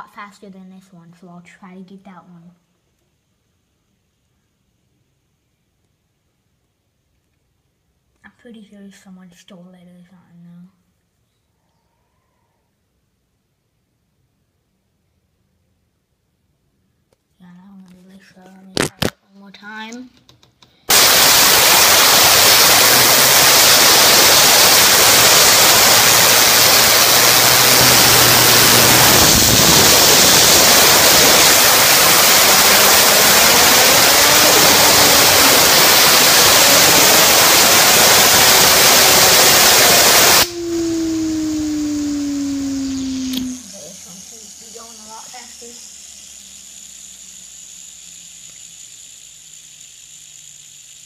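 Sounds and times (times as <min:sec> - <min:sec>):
fidget spinner whirring: 0:20.2 - 0:51.0
compressed air hissing: 0:20.9 - 0:51.0.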